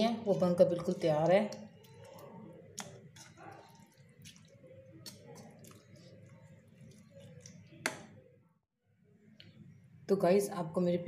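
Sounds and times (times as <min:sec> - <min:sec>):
wet squishing of chutney: 0:00.0 - 0:08.4.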